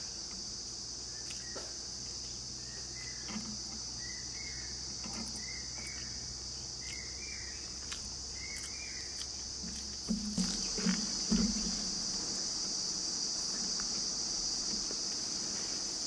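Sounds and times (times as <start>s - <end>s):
insects droning: 0.0s - 16.0s
eating rice by hand: 4.8s - 15.8s.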